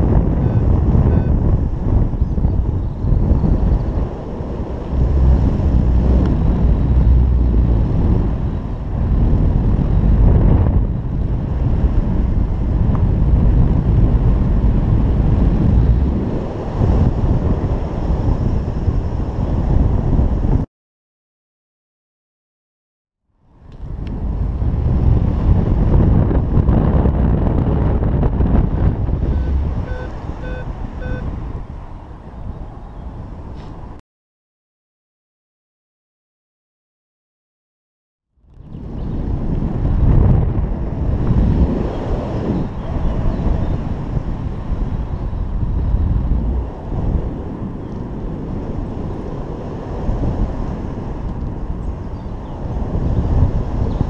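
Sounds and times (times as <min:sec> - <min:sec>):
wind buffeting microphone: 0:00.0 - 0:20.7, 0:23.5 - 0:34.0, 0:38.4 - 0:54.0
short electronic beeps: 0:00.4 - 0:01.4, 0:29.2 - 0:31.3.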